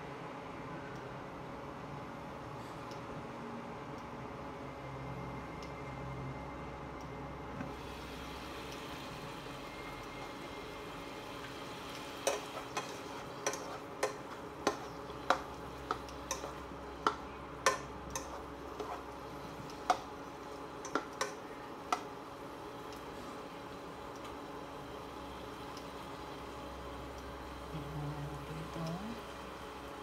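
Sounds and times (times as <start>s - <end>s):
meat and onion sizzling in a pan: 7.7s - 30.0s
spatula scraping a pan: 12.2s - 21.4s.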